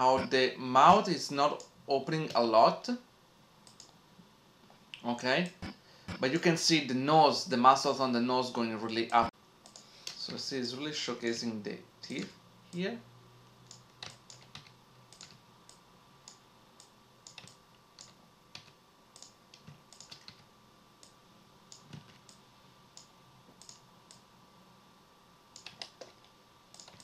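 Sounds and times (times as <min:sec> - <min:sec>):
computer keyboard and mouse clicking: 0:03.6 - 0:04.0, 0:08.9 - 0:10.3, 0:13.6 - 0:20.4, 0:21.0 - 0:22.4, 0:23.0 - 0:24.2, 0:25.6 - 0:27.0.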